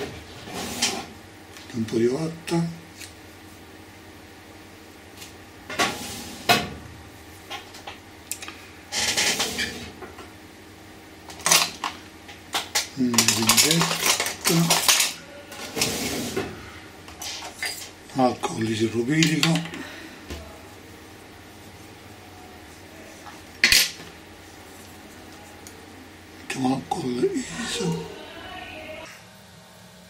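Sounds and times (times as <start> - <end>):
rustling and scraping: 0.0 - 1.1, 13.2 - 18.0.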